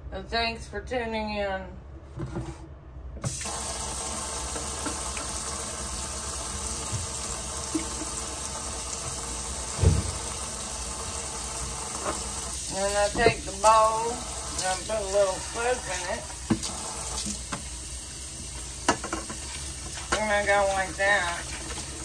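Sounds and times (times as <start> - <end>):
faucet water running into sink: 3.3 - 22.0
water splashing on pots: 3.3 - 22.0
dull knock: 9.8 - 10.2.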